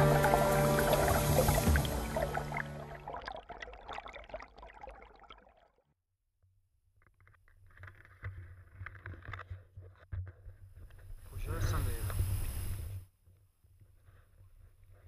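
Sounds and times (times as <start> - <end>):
water splashing and trickling: 0.0 - 5.8.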